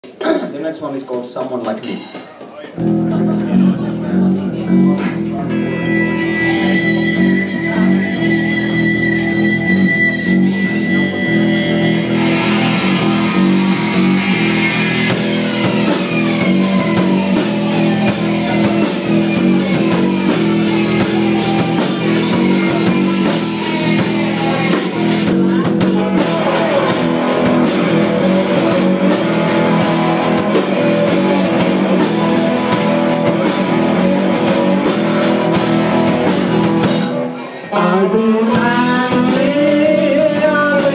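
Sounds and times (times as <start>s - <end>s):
drum kit beat: 1.3s - 37.4s, 38.4s - 40.9s
bass guitar: 2.7s - 40.9s
electric guitars: 2.7s - 40.9s.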